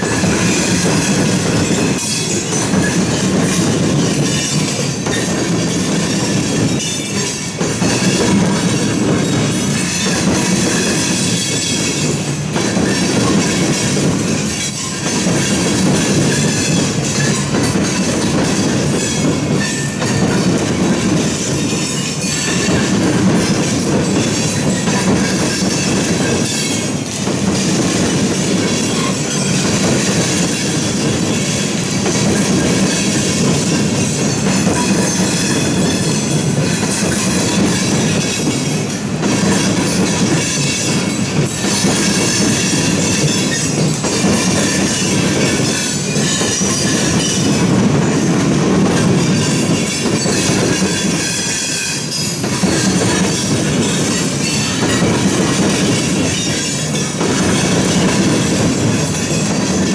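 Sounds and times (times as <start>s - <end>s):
train wheels rumbling on rail: 0.0s - 59.9s
wheel squeal: 49.2s - 59.9s.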